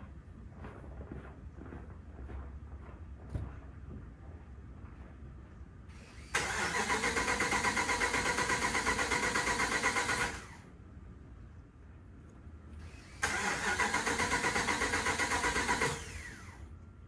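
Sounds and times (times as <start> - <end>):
starter motor cranking engine: 6.0 - 10.6, 12.9 - 16.6.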